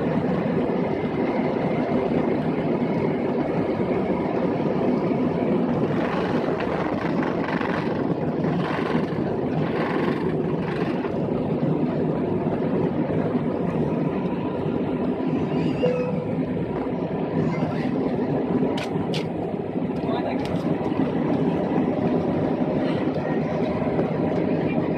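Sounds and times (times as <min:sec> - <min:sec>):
jet engines roaring in cabin: 0:00.0 - 0:24.9.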